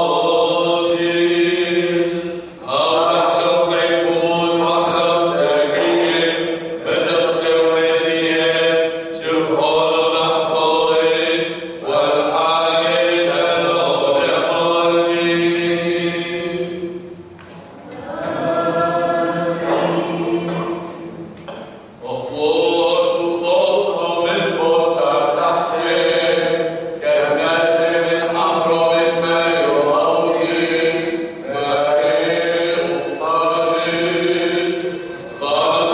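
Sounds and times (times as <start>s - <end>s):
voices chanting unaccompanied: 0.0s - 17.0s, 17.8s - 21.2s, 22.0s - 35.9s
high steady ringing: 31.5s - 35.9s.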